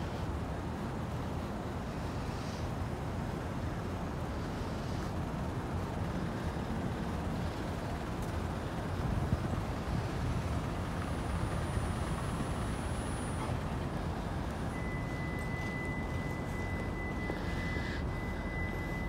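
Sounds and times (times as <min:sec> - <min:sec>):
road traffic rumble: 0:00.0 - 0:19.0
thin high tone: 0:14.7 - 0:19.0.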